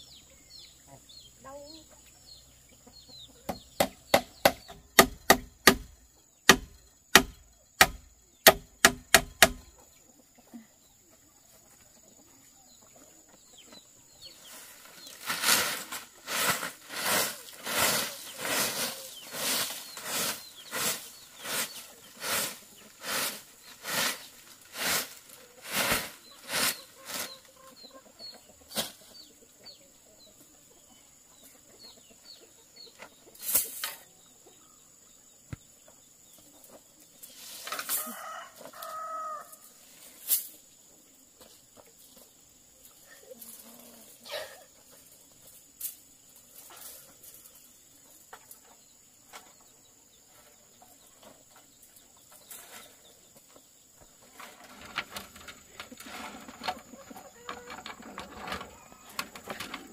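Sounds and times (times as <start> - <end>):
chickens clucking: 0.0 - 4.9, 9.6 - 59.9
hammering on wood: 3.5 - 5.9, 6.5 - 9.7
even noisy strokes: 14.5 - 27.4.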